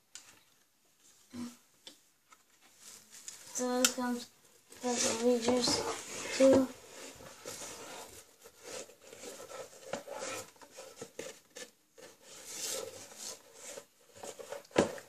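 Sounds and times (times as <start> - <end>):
cardboard box rubbing and sliding: 4.8 - 11.4, 12.0 - 14.6.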